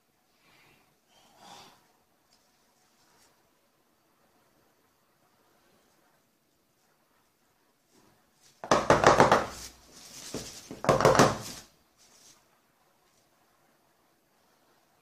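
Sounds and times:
metal pan knocking on countertop: 0:08.7 - 0:09.6, 0:10.7 - 0:11.4.

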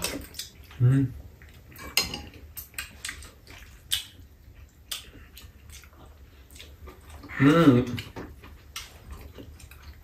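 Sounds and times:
wet chewing and slurping: 0:00.0 - 0:10.0.

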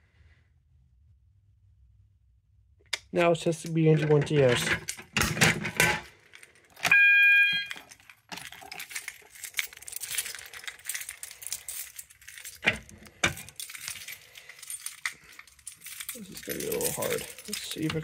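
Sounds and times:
keys jangling: 0:04.3 - 0:18.0
plastic cover rattling and clicking: 0:07.7 - 0:11.8.

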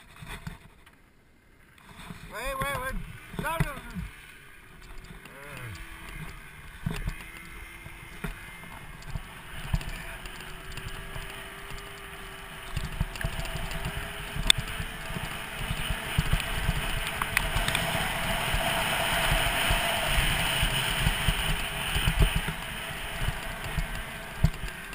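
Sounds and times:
snowmobile engine running: 0:01.6 - 0:24.9
skis hissing over snow: 0:17.5 - 0:24.9.

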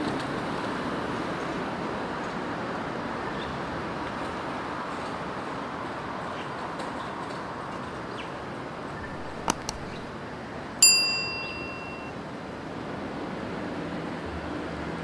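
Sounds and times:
city traffic hum: 0:00.0 - 0:15.0
mouse clicks: 0:09.0 - 0:10.1
notification bell ding: 0:10.8 - 0:12.1.

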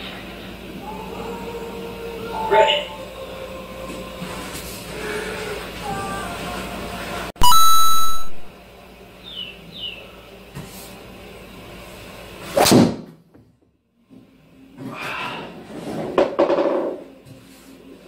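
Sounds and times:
electronic beep tone: 0:07.4 - 0:08.5.

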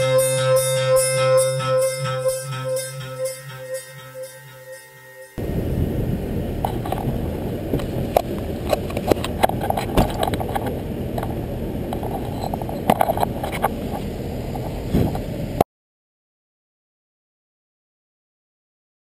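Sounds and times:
steady low rumble: 0:05.4 - 0:15.6.

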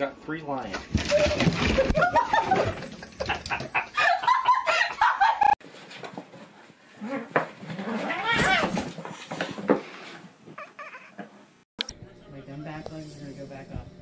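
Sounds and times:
cat meowing: 0:08.0 - 0:08.8, 0:10.6 - 0:11.2.

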